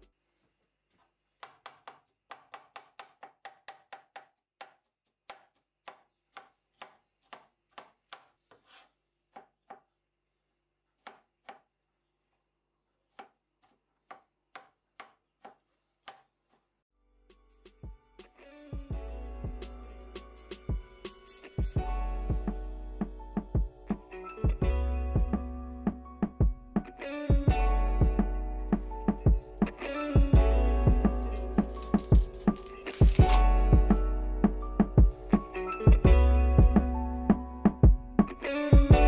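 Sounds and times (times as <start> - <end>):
knife chopping on cutting board: 1.4 - 9.9, 11.0 - 11.7, 13.1 - 16.6, 31.0 - 33.4.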